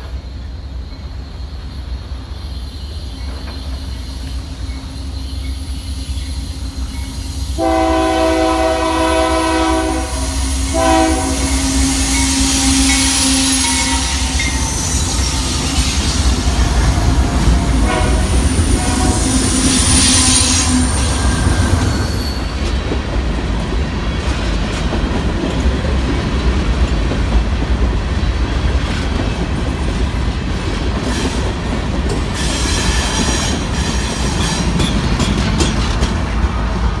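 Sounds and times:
train wheels rumbling on rails: 0.0s - 37.0s
wheel squeal: 19.5s - 22.8s
wheels clacking over rail joints: 20.6s - 37.0s.

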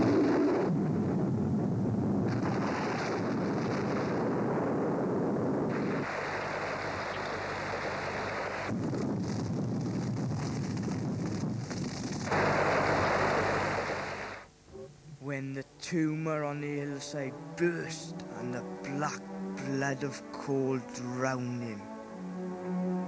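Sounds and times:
rushing rumbling noise: 0.0s - 14.5s.

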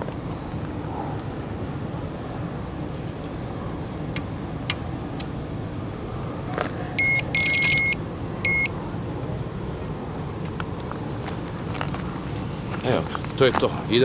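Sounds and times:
electronic bite alarm beeping: 7.0s - 8.7s.

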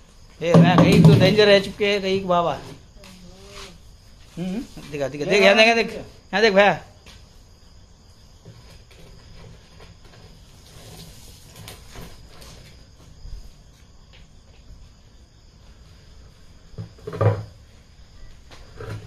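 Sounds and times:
sharp knock: 0.5s - 1.6s
plastic can scraping on tiled floor: 8.5s - 12.7s.

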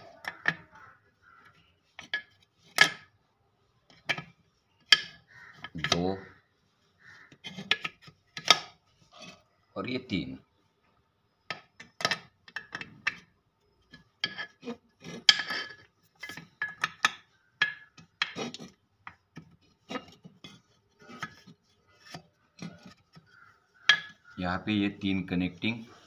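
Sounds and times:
metal parts clinking and scraping: 13.8s - 18.8s.

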